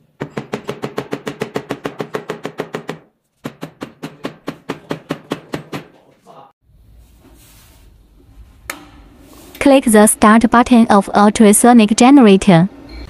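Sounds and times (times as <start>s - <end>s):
rapid knocks of wooden-handled tool: 0.2s - 6.1s.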